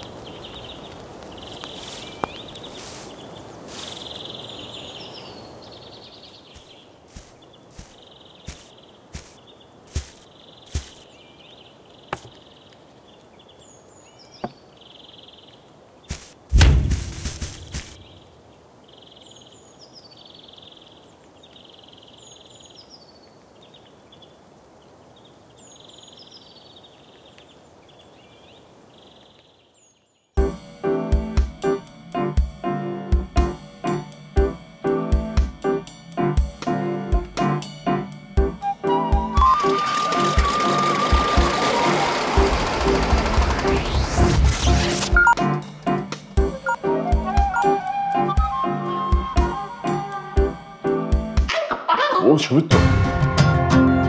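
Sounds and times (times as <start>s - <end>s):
bird chirping: 0.0s - 16.2s, 17.6s - 30.4s
steady low hiss: 0.0s - 39.1s, 44.1s - 51.4s
rapid pulsing trills: 39.3s - 46.8s
steady rushing noise: 40.0s - 46.4s.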